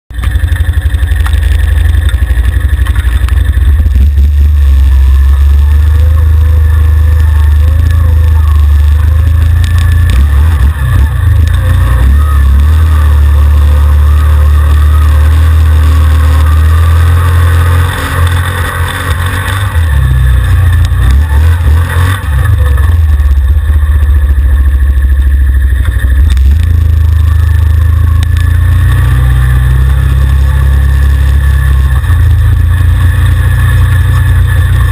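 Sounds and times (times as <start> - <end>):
atv engine revving: 0.1 - 34.9.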